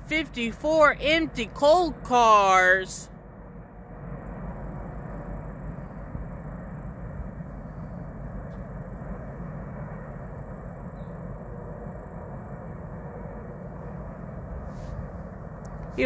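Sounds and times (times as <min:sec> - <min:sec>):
distant diesel locomotive rumble: 0:00.0 - 0:16.0.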